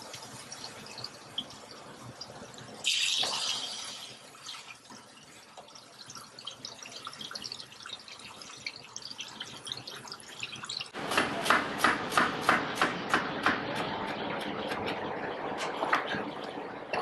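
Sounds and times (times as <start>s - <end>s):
knife chopping on cutting board: 11.0s - 14.8s.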